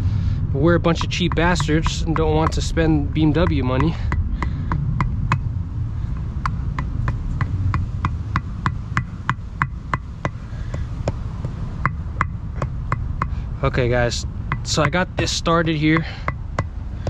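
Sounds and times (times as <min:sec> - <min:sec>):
rubber mallet tapping metal: 0:00.9 - 0:05.5, 0:06.1 - 0:13.4, 0:14.5 - 0:16.8.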